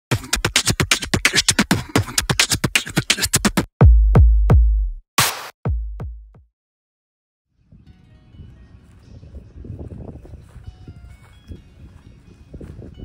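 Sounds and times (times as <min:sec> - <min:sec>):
drum machine jingle: 0:00.1 - 0:06.4
deep bass-drum hits: 0:03.8 - 0:05.0, 0:05.7 - 0:06.4.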